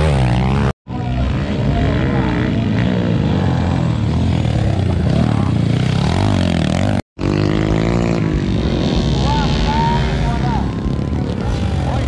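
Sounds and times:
motorcycle engines revving: 0:00.0 - 0:12.0.

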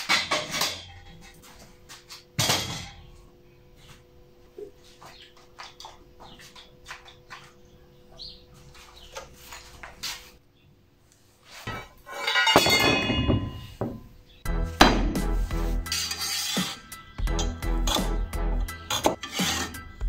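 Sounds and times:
metal tubing clattering: 0:11.6 - 0:14.0
background music: 0:14.4 - 0:20.0.

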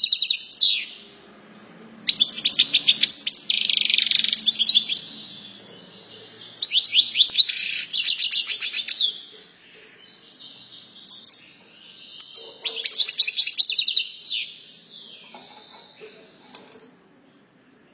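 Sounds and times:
goldfinch twittering song: 0:02.1 - 0:09.5.

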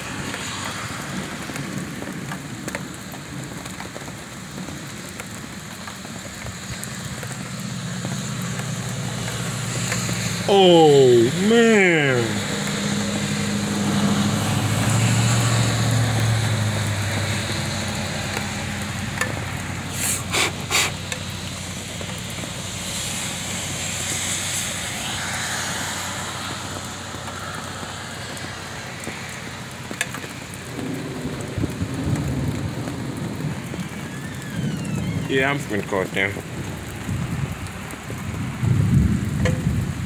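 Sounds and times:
heavy rain on pavement: 0:00.0 - 0:40.0
vehicle passing: 0:11.1 - 0:20.3.

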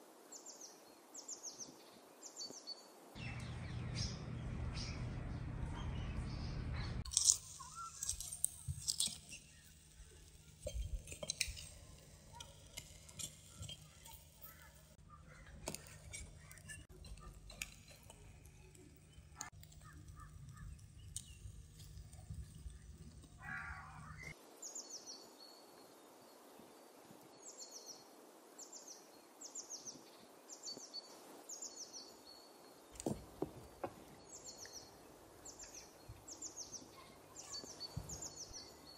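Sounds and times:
bird chirping: 0:00.4 - 0:25.9, 0:27.4 - 0:38.9
charcoal embers crackling: 0:06.2 - 0:24.4, 0:32.9 - 0:38.9.

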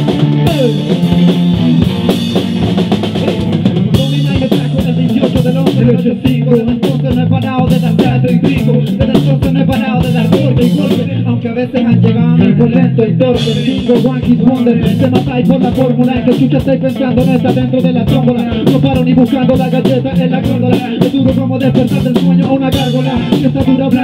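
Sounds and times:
drum kit hits: 0:00.0 - 0:11.2
bass guitar line: 0:00.0 - 0:24.0
electric guitar: 0:00.0 - 0:24.0.

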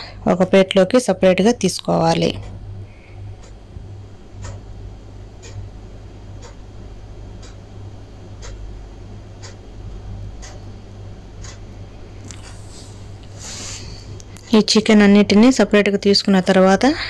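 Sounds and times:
steady low hum: 0:00.0 - 0:17.0
sharp even ticking: 0:04.3 - 0:06.7, 0:09.3 - 0:12.5.

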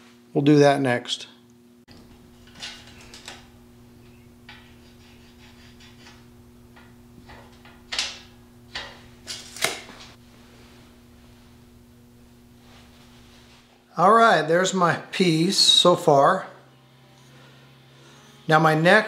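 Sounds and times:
steady electrical hum: 0:00.0 - 0:19.0
light scratching on metal: 0:02.1 - 0:09.1.

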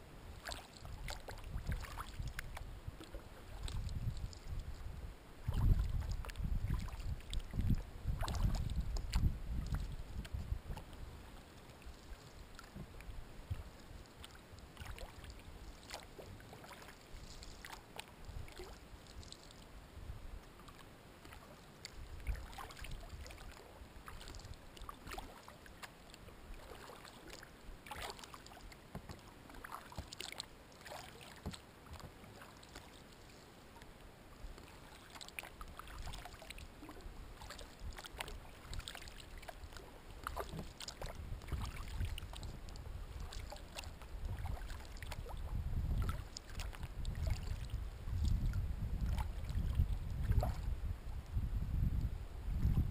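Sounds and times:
paddle splashing in water: 0:00.3 - 0:19.7, 0:20.5 - 0:50.7
water dripping off paddle: 0:20.5 - 0:33.0, 0:34.6 - 0:48.4.

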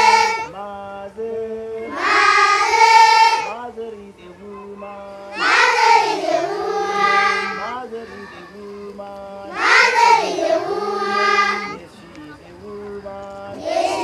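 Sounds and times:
children singing together: 0:00.0 - 0:00.5, 0:01.8 - 0:03.6, 0:05.1 - 0:08.7, 0:09.4 - 0:11.8, 0:13.5 - 0:14.0.

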